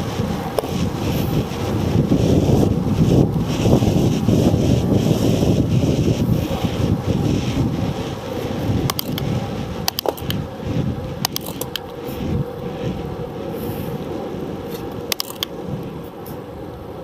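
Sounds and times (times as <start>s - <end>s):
wind buffeting microphone: 0.0s - 17.0s
sharp clicks and rattles: 8.8s - 10.4s, 11.2s - 12.0s, 14.7s - 15.6s.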